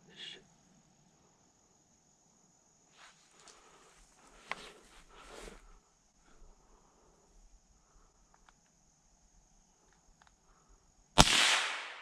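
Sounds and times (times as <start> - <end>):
faint high insect drone: 0.0 - 12.0.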